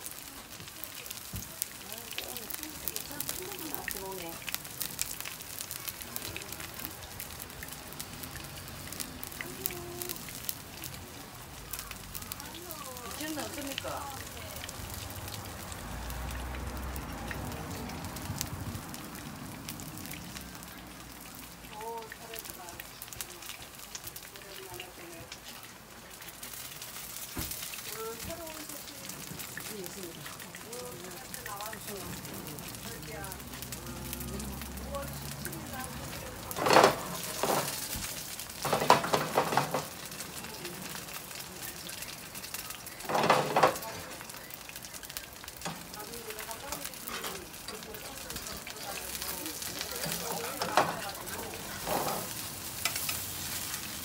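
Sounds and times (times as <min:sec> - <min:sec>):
pancake frying in oil: 0:00.0 - 0:54.0
pan clattering on burner grate: 0:36.5 - 0:38.0, 0:38.6 - 0:40.2, 0:43.0 - 0:44.0, 0:49.8 - 0:53.2.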